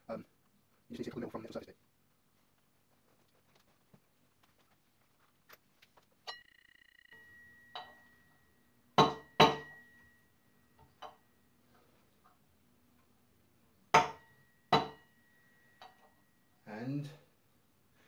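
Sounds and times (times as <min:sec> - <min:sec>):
metal clinks: 0:06.2 - 0:11.5.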